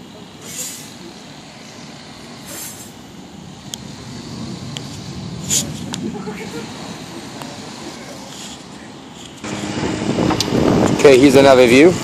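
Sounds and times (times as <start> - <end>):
vehicle traffic rumble: 0.0 - 12.0
short hisses: 0.4 - 1.0, 2.4 - 3.0.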